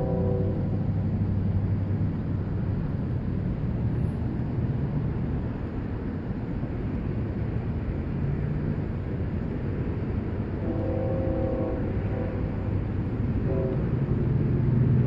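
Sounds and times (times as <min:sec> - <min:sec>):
distant locomotive air horn: 0:00.0 - 0:00.8, 0:10.6 - 0:14.3
steady low rumble: 0:00.0 - 0:15.0.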